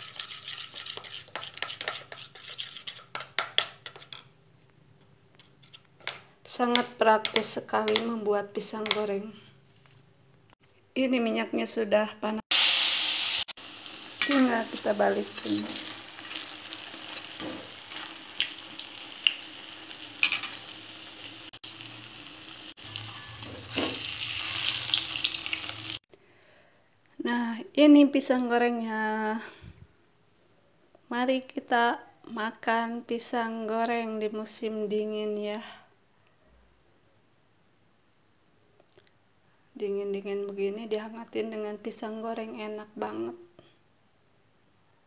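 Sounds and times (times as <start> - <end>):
spoon scraping batter in plastic bowl: 0.0 - 4.3.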